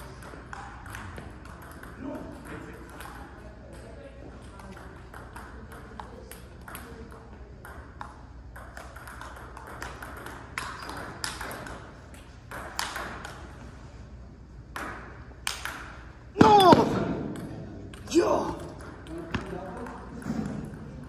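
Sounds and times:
table tennis ball clicks: 0.2 - 13.5.

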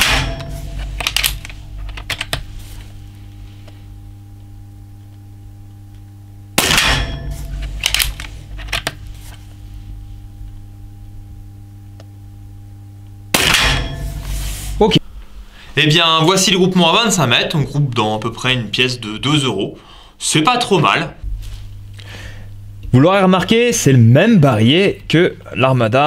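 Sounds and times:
air rifle shots: 0.0 - 1.4, 6.6 - 8.2, 13.3 - 14.2
rifle action clicking: 1.0 - 2.4, 7.8 - 8.9.

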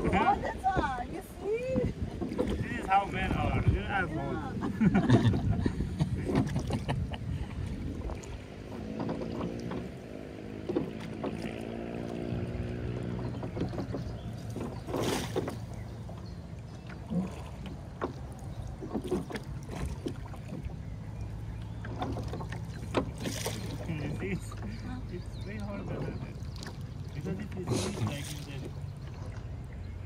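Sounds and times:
oars knocking in oarlocks: 0.0 - 3.4, 5.4 - 24.8
oar blades dipping in water: 0.0 - 3.7, 6.0 - 29.8.

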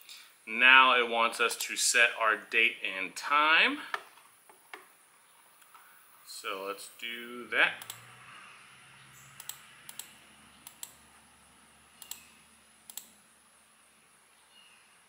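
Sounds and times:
computer mouse clicking: 7.8 - 8.0, 9.4 - 11.0, 12.0 - 12.3, 12.9 - 13.2.

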